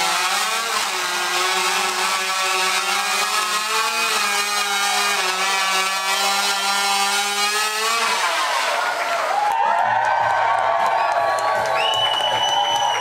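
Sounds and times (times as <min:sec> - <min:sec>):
chainsaw cutting logs: 0:00.0 - 0:09.7.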